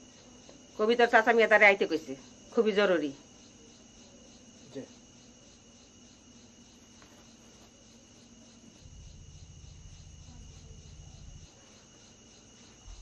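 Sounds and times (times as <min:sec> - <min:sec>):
crickets chirring: 0:00.0 - 0:13.0
low hum: 0:08.7 - 0:11.8.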